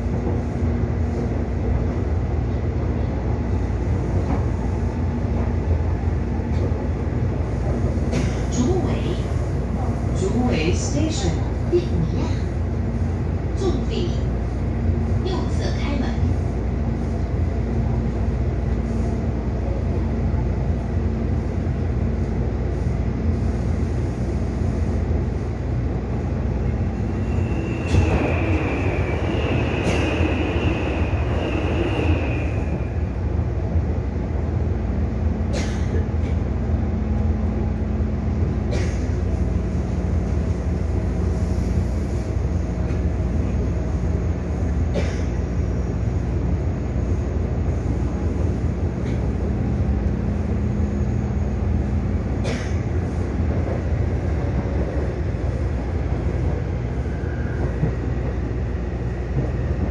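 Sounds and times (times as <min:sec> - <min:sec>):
train wheels and motors rumbling: 0:00.0 - 0:59.9
high squeal: 0:27.1 - 0:32.6.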